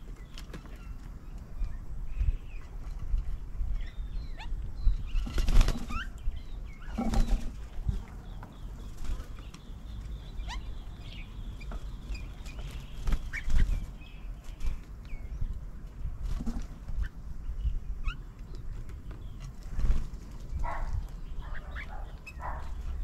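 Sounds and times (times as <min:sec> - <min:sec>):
birds flapping wings: 0:05.2 - 0:06.1, 0:12.5 - 0:13.8, 0:19.5 - 0:20.6.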